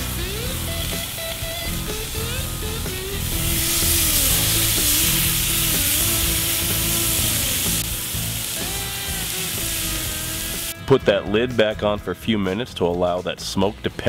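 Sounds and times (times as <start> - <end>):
meat sizzling on a grill: 0.0 - 10.8.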